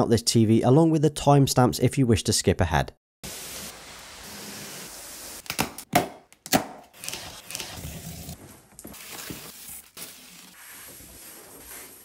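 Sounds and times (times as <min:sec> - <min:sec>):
cardboard scraping and rustling: 0:07.0 - 0:12.0.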